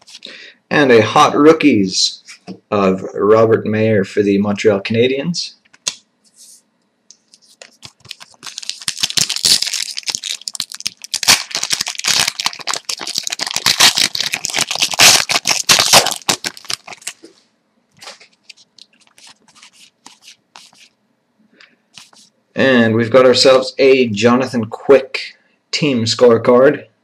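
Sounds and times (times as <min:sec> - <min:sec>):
foil wrappers crinkling: 0:07.3 - 0:17.3, 0:18.0 - 0:20.9.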